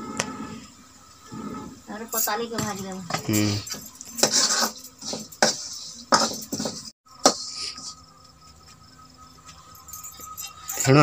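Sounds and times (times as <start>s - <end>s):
metal ladle scraping a wok: 4.2s - 7.9s.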